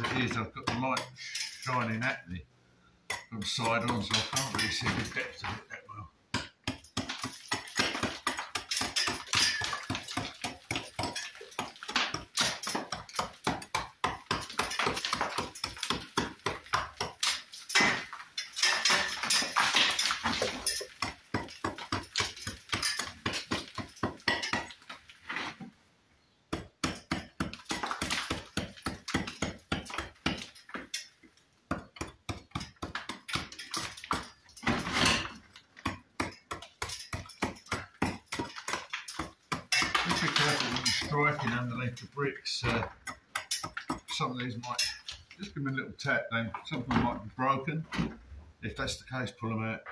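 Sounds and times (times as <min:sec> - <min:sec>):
hammer striking chisel on brick: 0:06.3 - 0:18.0, 0:26.5 - 0:30.9.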